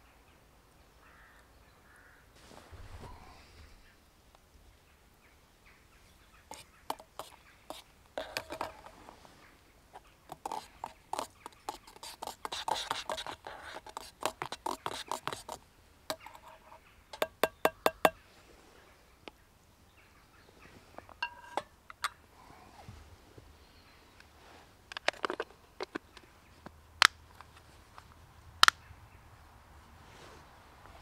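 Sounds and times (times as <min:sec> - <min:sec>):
spoon stirring in metal pot: 0:06.5 - 0:09.1, 0:10.3 - 0:18.2, 0:21.1 - 0:22.0
spoon clinking on metal stove: 0:08.3 - 0:08.9, 0:16.1 - 0:18.2, 0:21.2 - 0:21.8.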